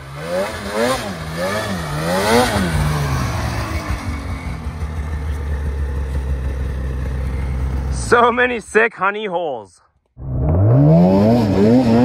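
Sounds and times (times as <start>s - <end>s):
snowmobile engine revving: 0.0s - 4.9s, 10.2s - 12.0s.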